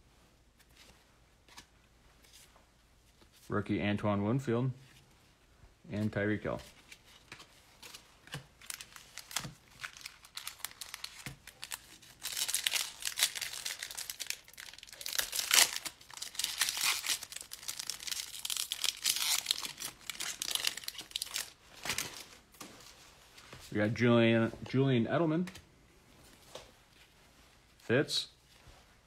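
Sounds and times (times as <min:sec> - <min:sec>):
foil pack ripping: 0:08.6 - 0:22.0
foil pack crackling: 0:08.6 - 0:22.2.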